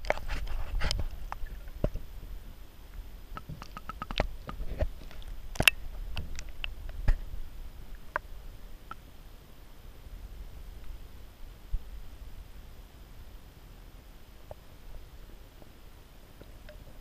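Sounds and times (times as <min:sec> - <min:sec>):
underwater clicks and knocks: 0:03.4 - 0:07.2.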